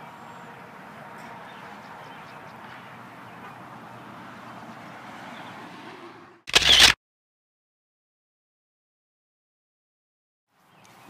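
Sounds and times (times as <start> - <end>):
outdoor background noise: 0.0 - 7.0, 10.5 - 11.0
camera shutter: 6.5 - 7.0.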